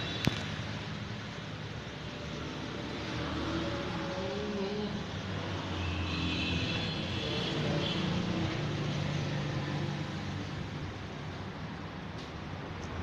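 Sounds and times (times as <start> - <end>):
vehicle engine hum: 0.0 - 13.0.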